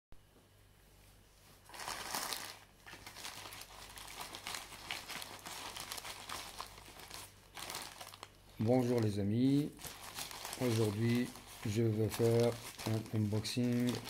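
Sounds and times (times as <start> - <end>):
plastic mailer bag crinkling: 1.7 - 14.0.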